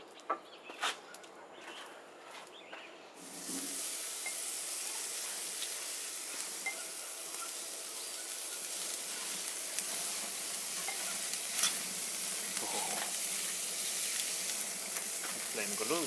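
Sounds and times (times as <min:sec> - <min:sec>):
small crackles: 0:00.0 - 0:16.0
steaks sizzling on a grill: 0:03.2 - 0:16.0.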